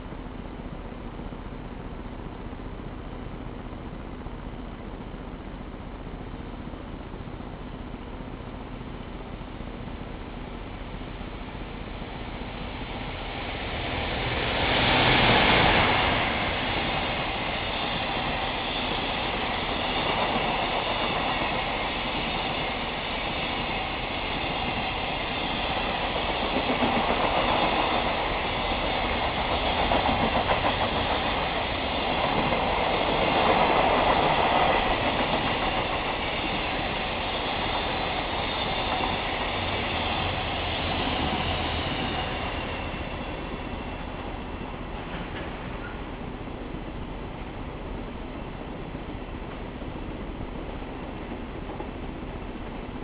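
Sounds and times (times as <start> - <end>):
electric locomotive passing at speed: 5.8 - 53.0
train wagons rolling by: 24.4 - 46.4.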